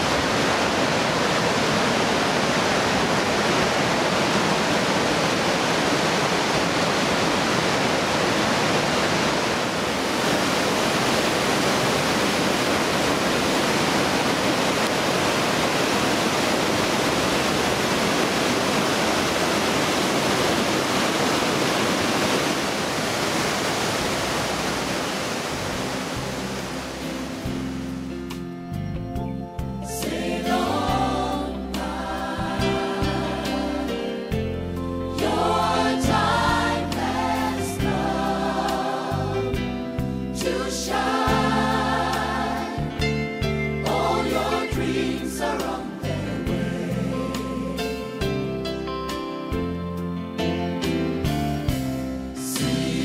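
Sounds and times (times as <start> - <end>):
river water rushing over boulders: 0.0 - 28.5.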